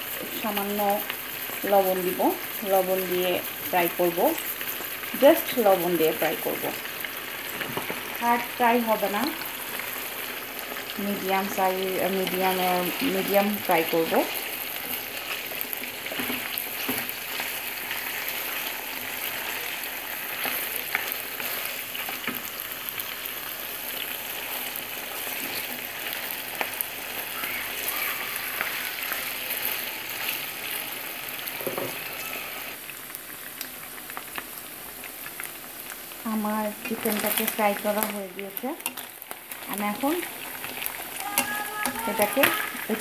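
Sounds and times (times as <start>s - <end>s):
chicken frying in hot oil: 0.0s - 43.0s
wooden spatula stirring: 11.8s - 22.6s, 38.8s - 43.0s.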